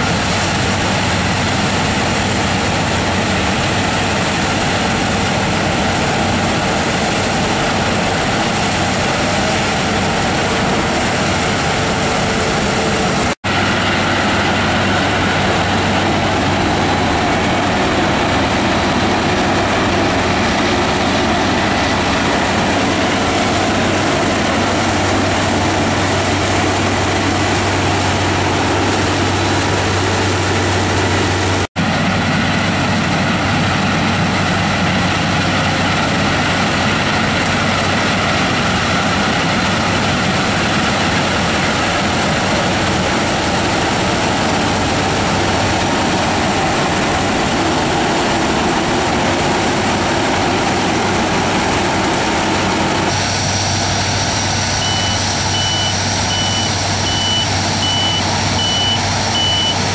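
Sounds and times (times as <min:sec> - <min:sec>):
combine harvester droning: 0:00.0 - 0:59.9
reversing alarm beeping: 0:54.8 - 0:59.9.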